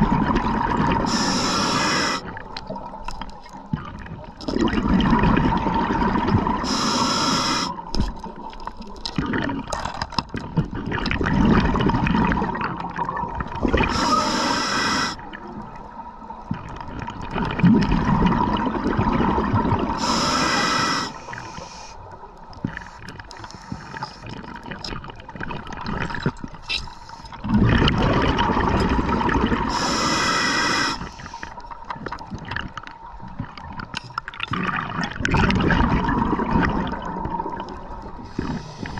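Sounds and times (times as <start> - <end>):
exhale bubbling underwater: 0.0 - 21.9, 22.8 - 38.9
regulator inhale hiss: 1.1 - 2.3, 6.6 - 7.8, 13.9 - 15.3, 20.0 - 22.1, 22.7 - 24.3, 29.7 - 31.6, 38.2 - 38.9.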